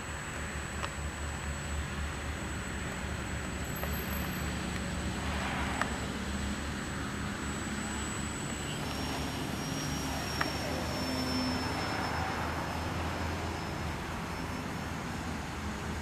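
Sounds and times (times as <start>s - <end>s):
model plane motor whine: 0.0s - 16.0s
outdoor background noise: 0.0s - 16.0s
car passing: 4.4s - 16.0s.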